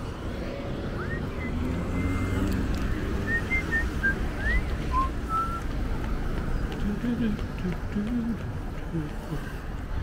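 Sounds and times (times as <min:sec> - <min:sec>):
wind and road noise: 0:00.0 - 0:10.0
person whistling: 0:01.0 - 0:02.3, 0:03.2 - 0:05.6.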